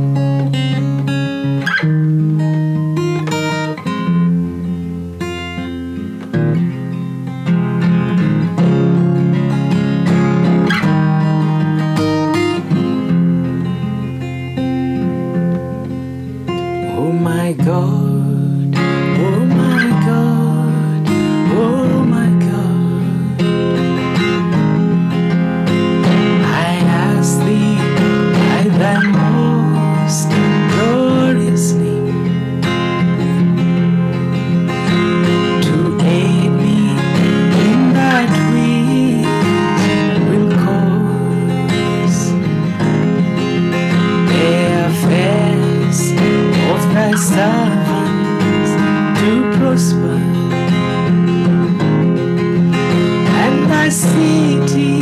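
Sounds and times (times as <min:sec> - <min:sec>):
acoustic guitar strumming: 0:00.0 - 0:55.0
man singing: 0:16.8 - 0:23.6, 0:26.0 - 0:32.4, 0:34.9 - 0:42.5, 0:43.9 - 0:51.2, 0:53.0 - 0:55.0.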